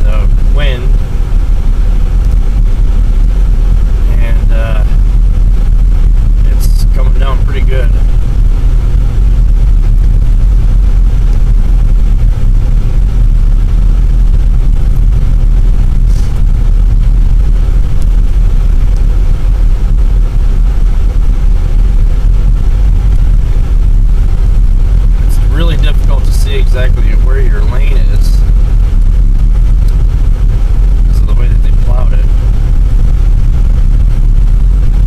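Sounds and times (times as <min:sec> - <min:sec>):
car engine and tyre drone: 0:00.0 - 0:35.0.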